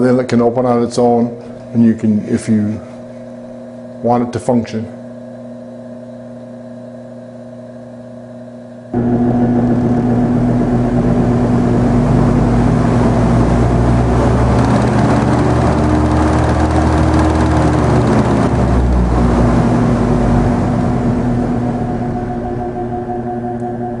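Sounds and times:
ventilation fans humming: 0:00.0 - 0:24.0
higher tone: 0:09.0 - 0:24.0.

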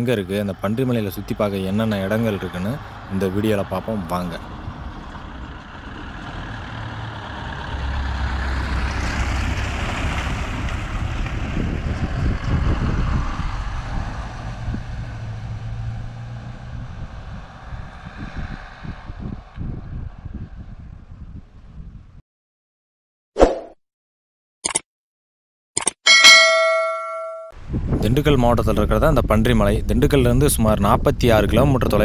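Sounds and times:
truck engine passing: 0:01.3 - 0:19.5.

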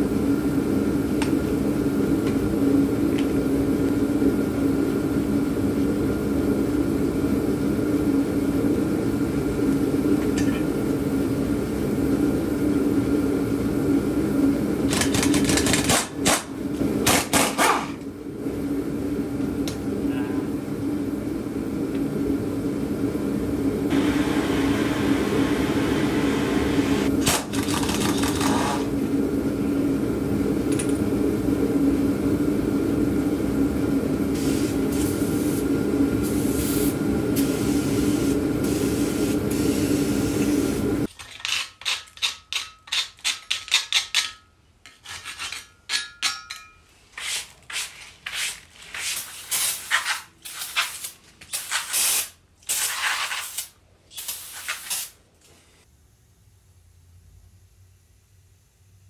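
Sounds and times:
aerosol spray hissing: 0:36.3 - 0:40.8.

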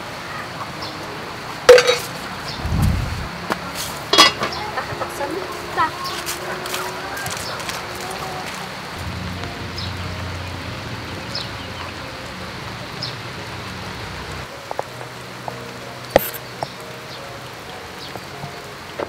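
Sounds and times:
rain falling on roof: 0:00.0 - 0:19.0
sharp drips: 0:00.6 - 0:02.6, 0:03.3 - 0:19.0
low hum: 0:02.5 - 0:03.5, 0:09.0 - 0:11.8.

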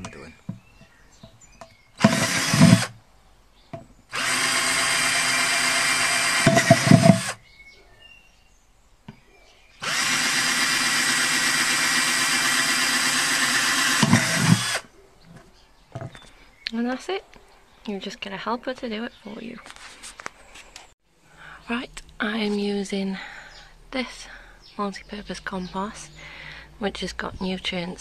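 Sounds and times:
cordless drill boring plastic: 0:02.0 - 0:03.0, 0:04.1 - 0:07.4, 0:09.8 - 0:14.8.

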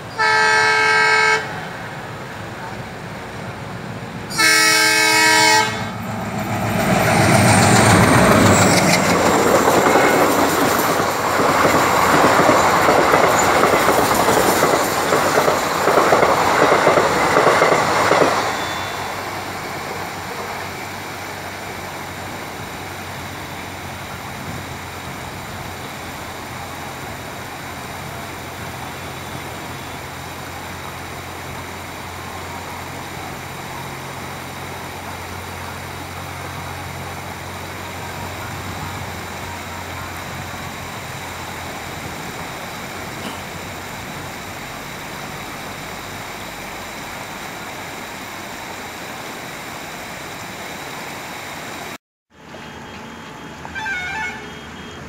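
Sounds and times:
passenger train passing at speed: 0:00.0 - 0:55.0
train horn: 0:00.1 - 0:01.8, 0:04.3 - 0:06.1, 0:52.6 - 0:55.0.

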